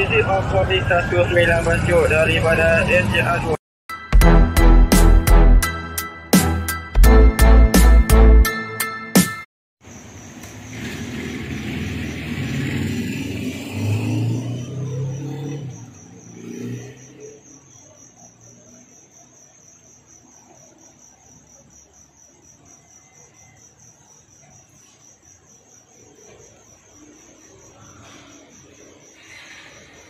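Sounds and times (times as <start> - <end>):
insect trill: 9.8 - 30.0
car engine: 10.7 - 17.1.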